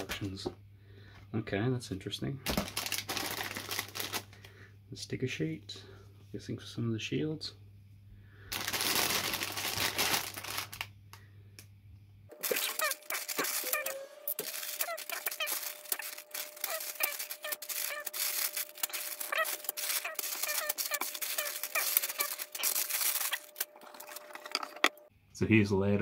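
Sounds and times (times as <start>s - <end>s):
faint steady hum: 0.0s - 26.0s
plastic bags crinkling: 2.5s - 4.4s, 8.5s - 10.9s, 12.3s - 24.9s.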